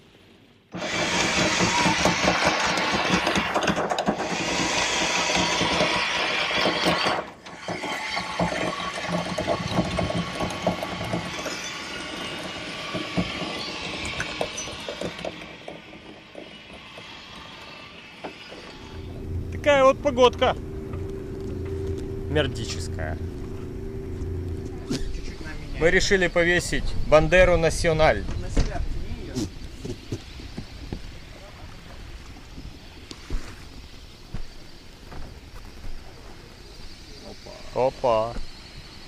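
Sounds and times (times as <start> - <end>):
anchor chain rattling and clanking: 1.1 - 17.7.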